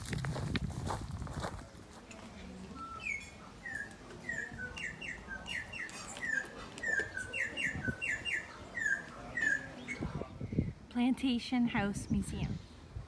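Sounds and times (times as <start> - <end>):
bird singing whistled notes: 2.7 - 10.7.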